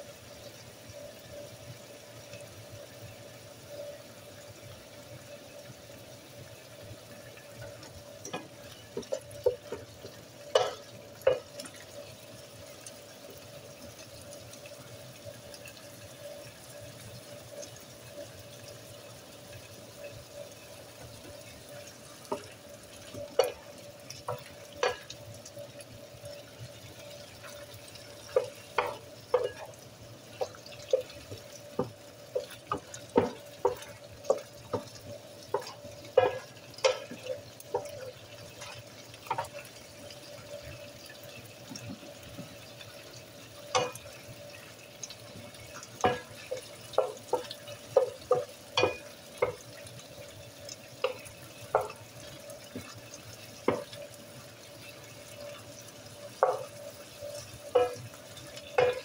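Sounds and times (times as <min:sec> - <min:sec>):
food bubbling in a pan: 0:00.0 - 0:59.0
wooden spoon scraping a pan: 0:27.0 - 0:39.8, 0:56.4 - 0:59.0.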